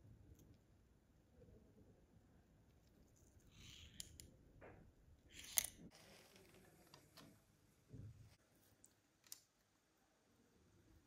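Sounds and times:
plastic parts clicking: 0:05.3 - 0:05.8.

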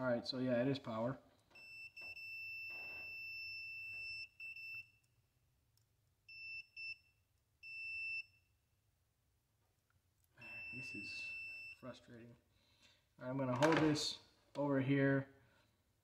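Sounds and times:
multimeter continuity beeps: 0:01.6 - 0:05.1, 0:06.3 - 0:08.5, 0:10.4 - 0:11.9.

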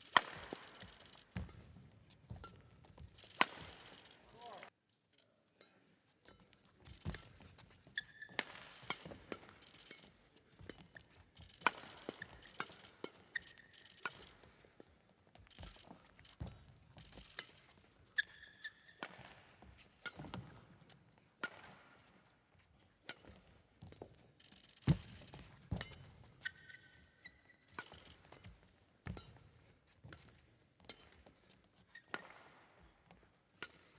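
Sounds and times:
rackets striking shuttlecock: 0:00.0 - 0:04.6, 0:06.2 - 0:33.9
shoes squeaking on court floor: 0:00.0 - 0:04.6, 0:06.2 - 0:33.9.

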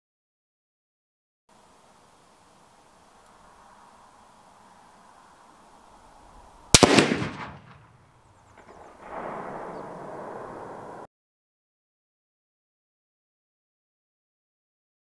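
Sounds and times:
rifle shot echoing: 0:06.7 - 0:11.0.

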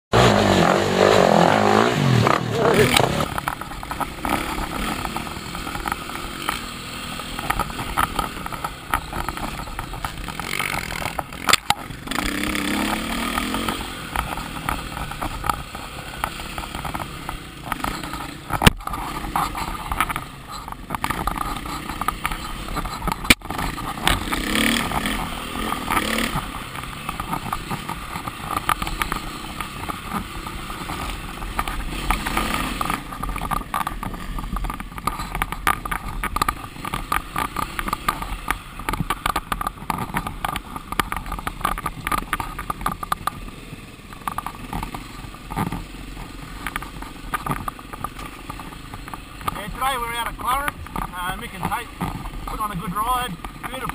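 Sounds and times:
dirt bike engine revving: 0:00.1 - 0:53.9.

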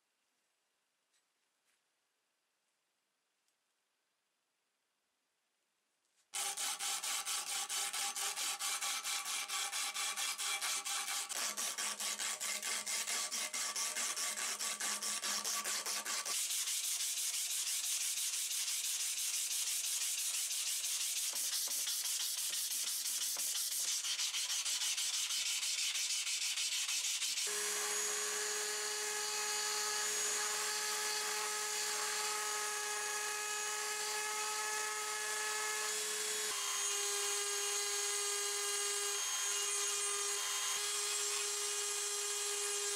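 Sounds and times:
rotary tool whining: 0:06.4 - 0:18.6, 0:23.3 - 0:42.9
blade rubbing on sandpaper: 0:06.4 - 0:27.5.

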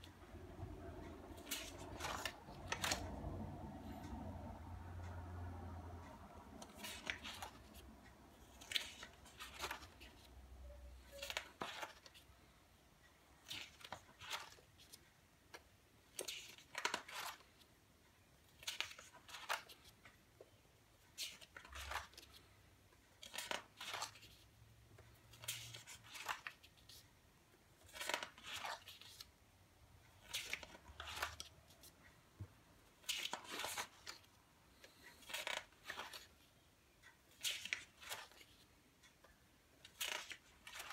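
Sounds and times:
pages turning swish: 0:01.3 - 0:03.2.

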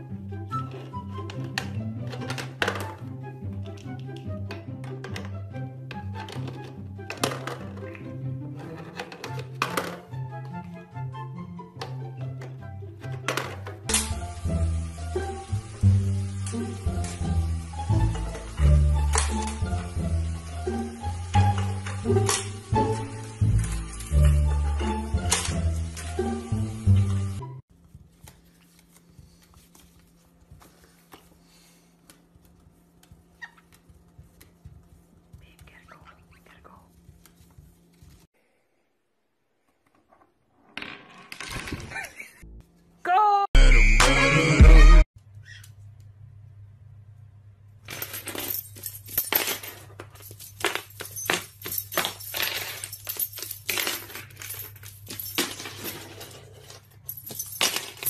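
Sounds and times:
ball and bird feet on wooden floor: 0:27.7 - 0:38.3.

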